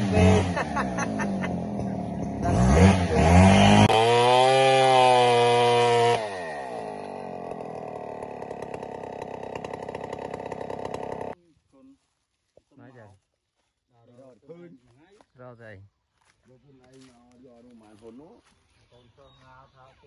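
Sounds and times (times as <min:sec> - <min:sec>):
chainsaw revving and cutting log: 0:00.0 - 0:11.4.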